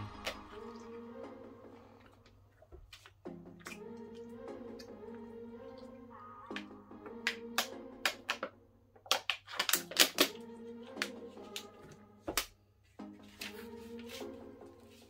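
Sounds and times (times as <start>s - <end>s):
background music: 0.0s - 15.0s
plastic water bottle crackling: 6.5s - 10.4s.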